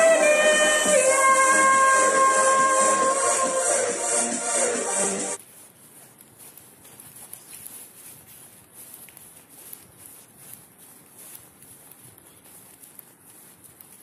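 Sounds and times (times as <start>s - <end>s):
footsteps on dry leaves: 5.4s - 14.0s.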